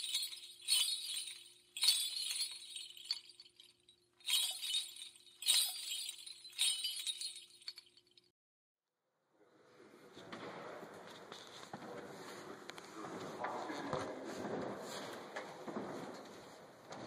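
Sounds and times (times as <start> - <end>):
glassy crash hits: 0.0 - 3.7, 4.3 - 7.8.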